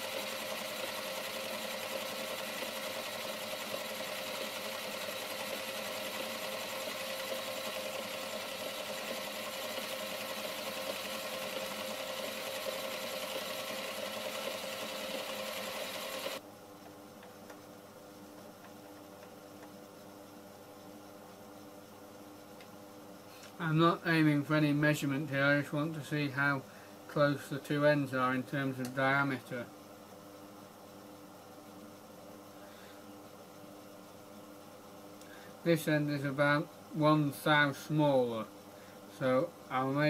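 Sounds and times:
lathe running with motor whine: 0.0s - 16.4s
faint hum: 16.4s - 40.0s.

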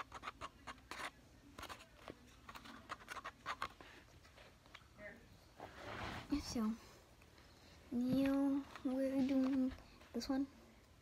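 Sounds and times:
plastic stick scraping foam cup: 0.0s - 3.8s.

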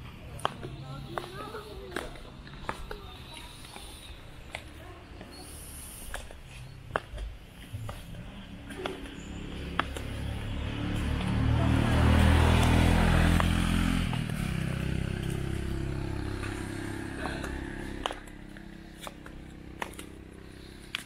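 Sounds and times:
motorcycle engine passing: 7.9s - 21.0s.

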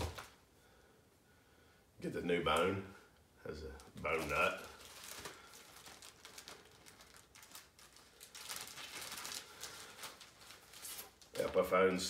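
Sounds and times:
plastic bag and paper crinkling: 0.0s - 0.4s, 3.7s - 12.0s.

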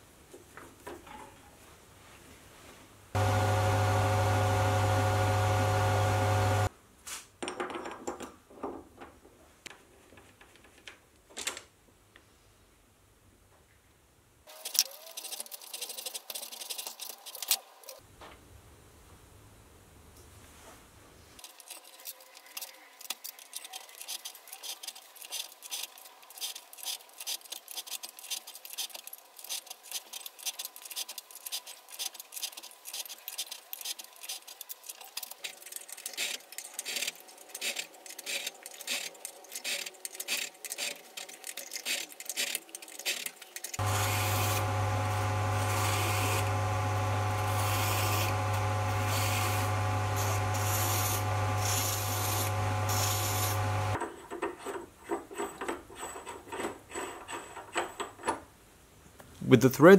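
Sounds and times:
faint lathe hum: 3.2s - 6.7s, 43.8s - 54.0s
loud steady motor hum: 3.2s - 6.7s, 43.8s - 54.0s
metal rubbing on metal: 47.4s - 53.6s.

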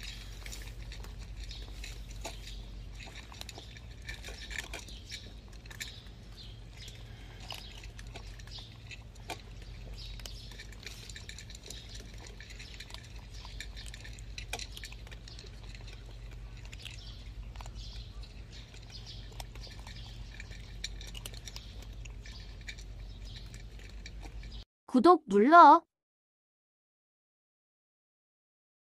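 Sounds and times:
cats crunching dry kibble: 0.0s - 24.6s
steady low hum: 0.0s - 24.6s.

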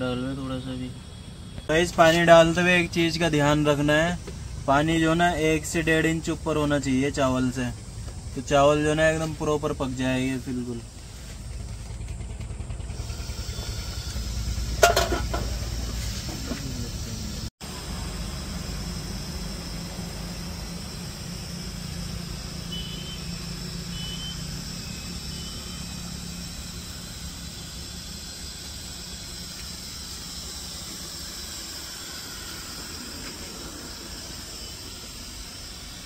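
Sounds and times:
gas burner flame hissing: 12.8s - 36.0s.

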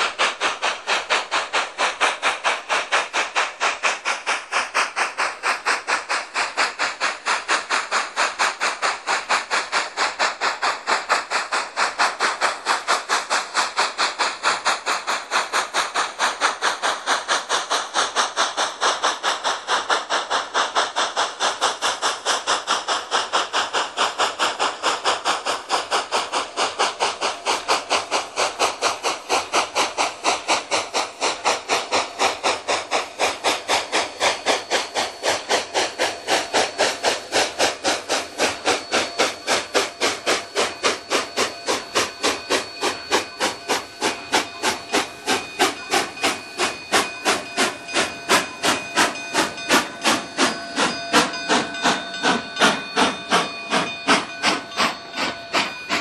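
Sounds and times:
steam locomotive chuffing: 0.0s - 56.0s
thin steady ringing tone: 34.3s - 56.0s.

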